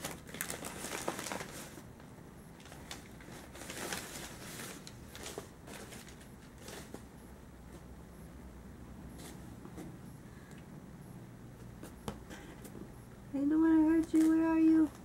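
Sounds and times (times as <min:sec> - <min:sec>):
paper and cardboard rustling: 0:00.0 - 0:01.8, 0:02.6 - 0:07.1.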